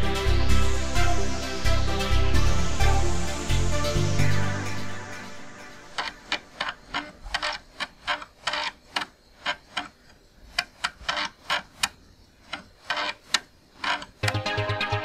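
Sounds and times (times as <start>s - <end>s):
floppy disk drive clicking: 5.9s - 14.4s.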